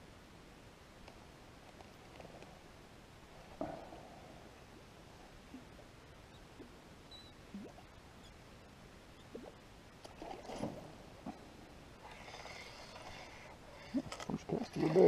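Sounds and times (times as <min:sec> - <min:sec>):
small water plops: 0:07.5 - 0:07.9.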